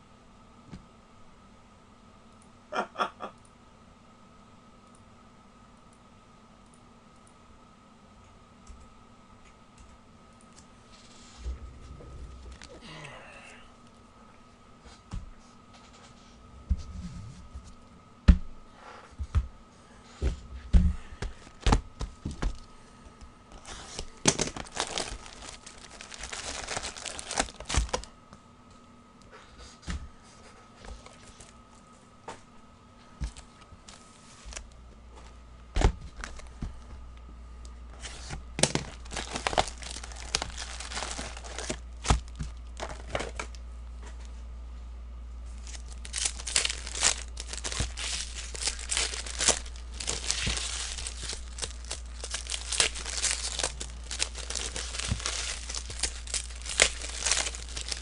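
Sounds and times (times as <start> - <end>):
card packs crinkling and tearing: 23.6 - 28.1, 35.8 - 36.6, 38.0 - 43.6, 45.6 - 58.0.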